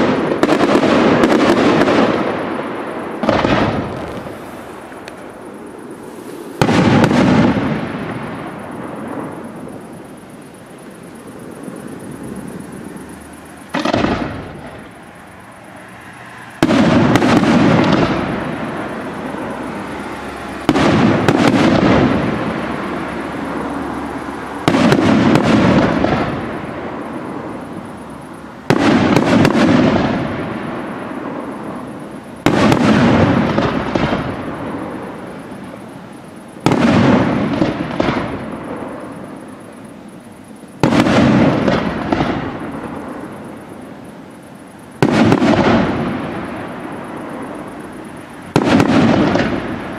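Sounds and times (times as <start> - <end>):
firework crackling: 0.0 - 49.9
firework shells bursting: 3.2 - 10.2.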